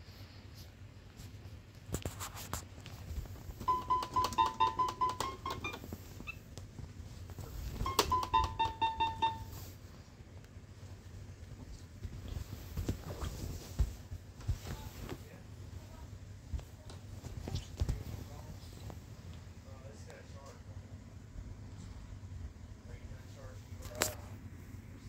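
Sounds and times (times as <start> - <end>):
toy keyboard notes: 3.6 - 5.8, 7.8 - 9.6.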